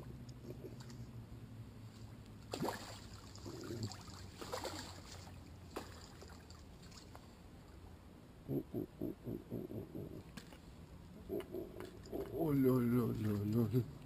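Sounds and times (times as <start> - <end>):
fish splashing at water surface: 2.5 - 7.2.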